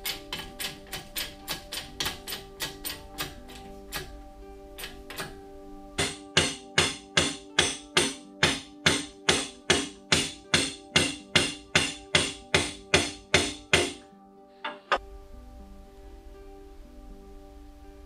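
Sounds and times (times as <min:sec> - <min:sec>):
sustained chord: 0:14.1 - 0:18.0.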